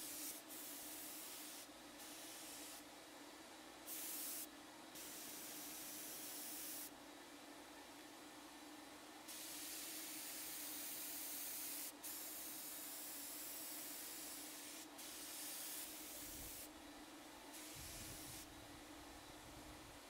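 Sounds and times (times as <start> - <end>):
paint spray gun hissing: 0.0 - 2.8, 3.9 - 6.9, 9.3 - 16.7, 17.5 - 18.5
faint steady hum: 0.0 - 20.0.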